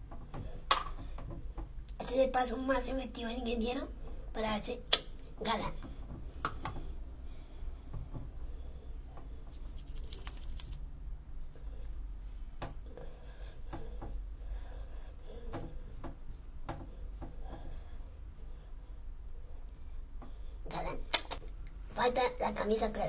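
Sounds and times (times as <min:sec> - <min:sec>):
hands rubbing wet hair: 0:09.5 - 0:10.9.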